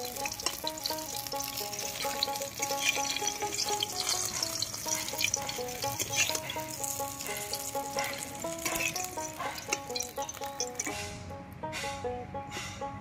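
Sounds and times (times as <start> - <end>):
fritters sizzling in hot oil: 0.0 - 11.0
metal spatula scraping and tapping: 0.0 - 12.0
background music melody: 0.0 - 13.0.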